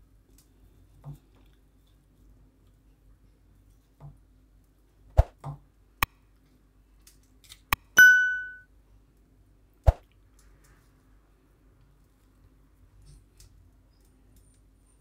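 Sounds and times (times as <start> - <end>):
bright bell ding: 8.0 - 8.6.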